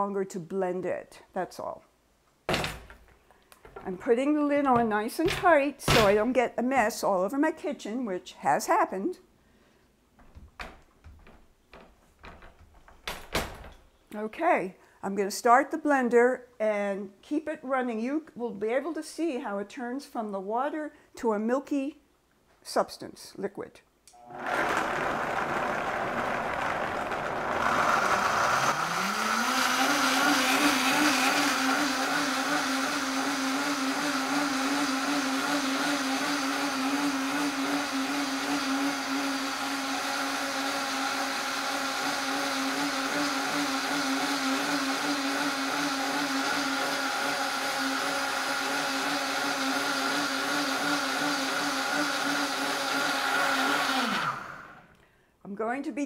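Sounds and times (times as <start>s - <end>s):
blender motor grinding: 24.2s - 54.9s.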